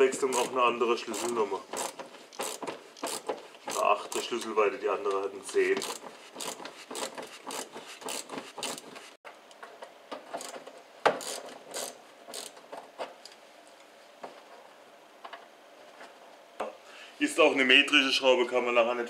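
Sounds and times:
hand ratchet clicking: 0.1 - 4.3, 5.7 - 9.1, 10.3 - 12.6.

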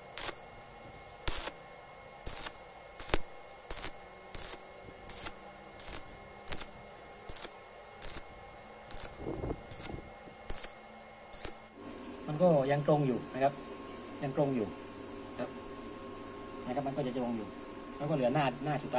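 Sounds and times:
welding arc crackling: 0.0 - 0.6, 1.2 - 11.8.

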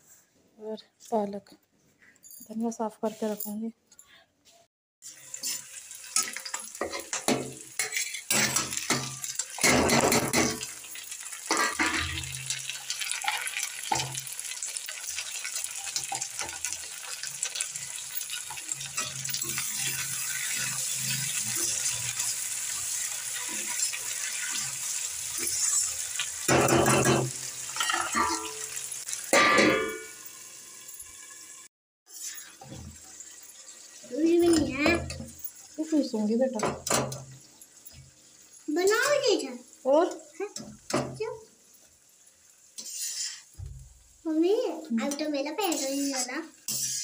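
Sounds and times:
onions sizzling in oil: 5.0 - 47.0
metal spatula scraping a pan: 5.3 - 10.7, 11.4 - 28.8, 32.1 - 33.2, 42.8 - 43.5, 45.0 - 47.0.

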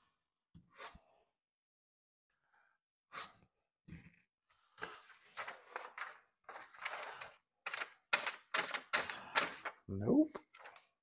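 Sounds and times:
paper crinkling: 4.8 - 9.8, 10.4 - 10.9.

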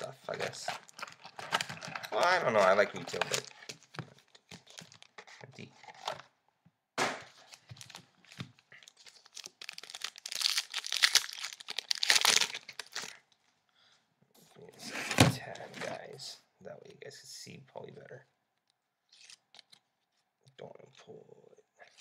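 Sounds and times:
wrapper tearing and crinkling: 7.4 - 13.2.

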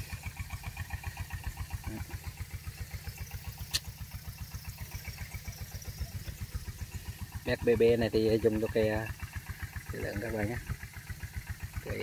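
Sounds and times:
sharp click: 3.7 - 3.9.

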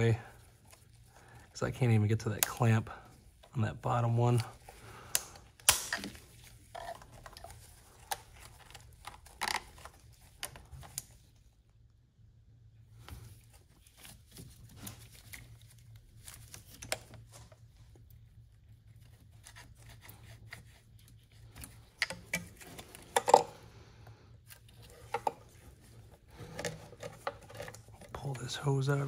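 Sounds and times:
low steady hum: 0.0 - 29.0
clicks and scrapes of hose work: 2.2 - 11.4, 24.4 - 28.5.

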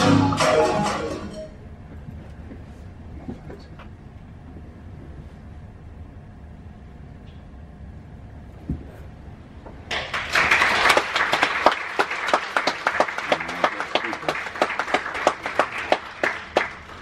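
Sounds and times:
audience applauding: 9.9 - 17.0.

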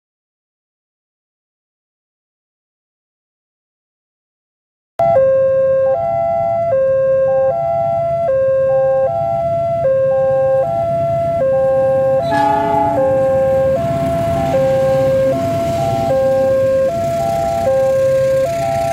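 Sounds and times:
level crossing two-tone alarm: 5.0 - 18.9
low rumble of traffic: 5.0 - 18.9
train horn blast: 12.2 - 15.5.

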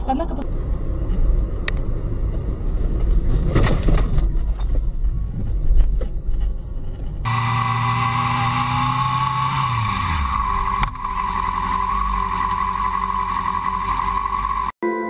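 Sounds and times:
steady high whine: 6.8 - 14.8.

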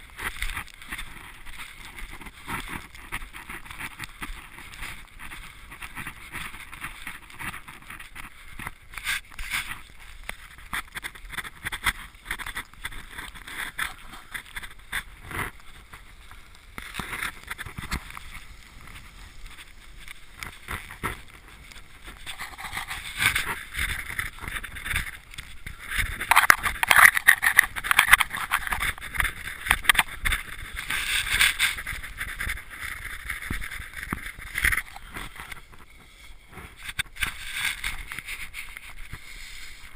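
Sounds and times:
footsteps crunching in snow: 0.0 - 39.9
rustling near microphone: 0.0 - 39.9.

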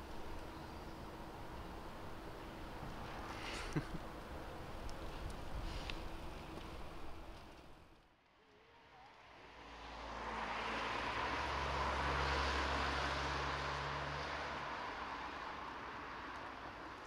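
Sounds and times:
car passing by: 9.2 - 17.0.

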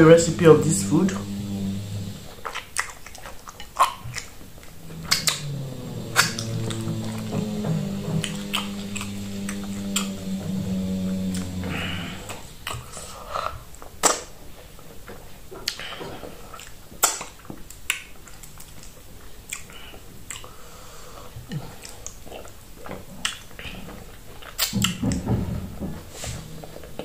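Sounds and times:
wet chewing and mouth clicks: 2.3 - 5.4, 16.6 - 20.5.

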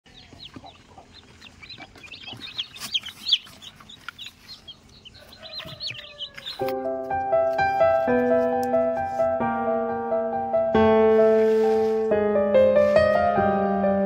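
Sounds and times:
chicks peeping: 0.1 - 8.3
piano music: 6.1 - 14.0.

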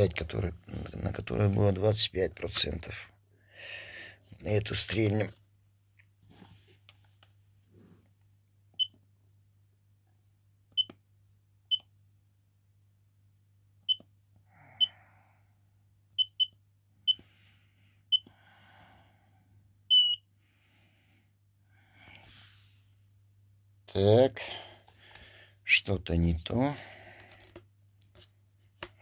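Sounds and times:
battery tester beeping: 16.2 - 17.2, 19.9 - 20.2.

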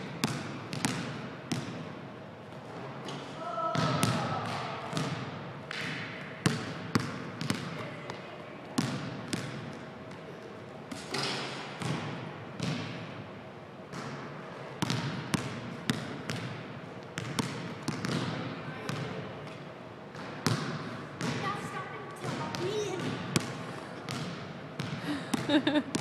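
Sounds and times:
basketball bouncing on hardwood floor: 0.2 - 1.8, 3.8 - 4.2, 5.8 - 8.2, 11.8 - 12.9, 14.8 - 16.5, 17.2 - 19.0, 20.2 - 21.4, 24.1 - 26.0.

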